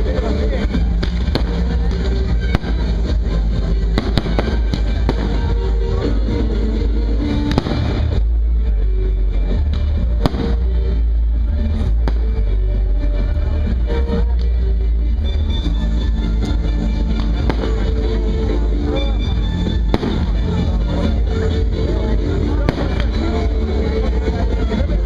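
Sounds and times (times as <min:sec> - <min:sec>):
fireworks bursting and crackling: 0:00.0 - 0:08.7, 0:09.6 - 0:12.6, 0:16.4 - 0:21.7, 0:22.4 - 0:24.0
loud music with heavy bass: 0:00.0 - 0:25.0.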